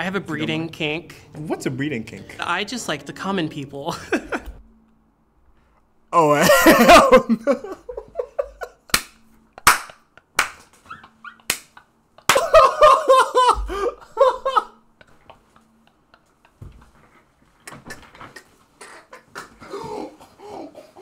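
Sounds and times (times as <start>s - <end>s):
sharp hand smacks: 8.9s - 10.7s, 11.4s - 12.4s.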